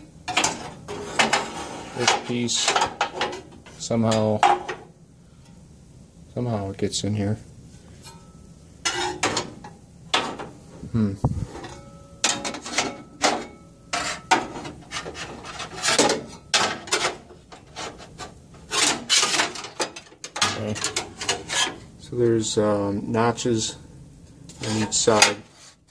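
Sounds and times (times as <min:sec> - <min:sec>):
metal scraping and knocking: 0:00.3 - 0:04.9, 0:08.0 - 0:10.6, 0:11.3 - 0:21.9.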